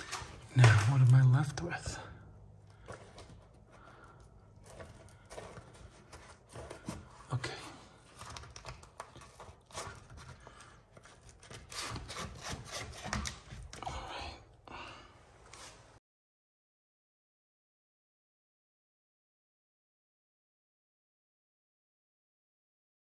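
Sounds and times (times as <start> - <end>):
wallpaper rustling and rubbing: 0.0 - 1.2, 2.8 - 13.7.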